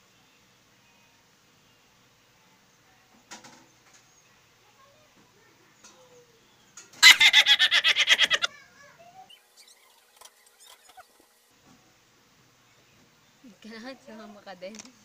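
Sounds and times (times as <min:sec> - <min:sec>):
rapid chattering animal call: 0:07.0 - 0:08.5, 0:09.6 - 0:11.3.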